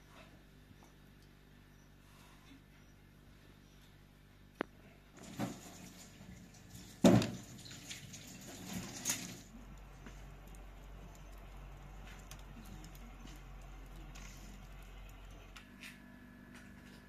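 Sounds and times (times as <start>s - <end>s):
low steady hum: 0.0s - 17.0s
wood fire crackling: 4.5s - 17.0s.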